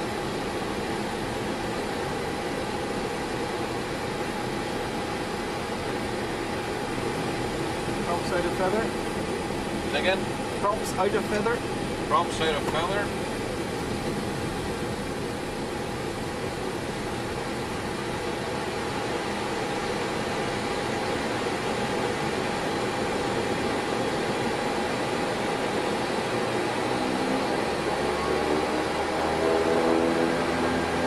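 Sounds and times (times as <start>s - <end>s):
turboprop engines running: 0.0s - 31.0s.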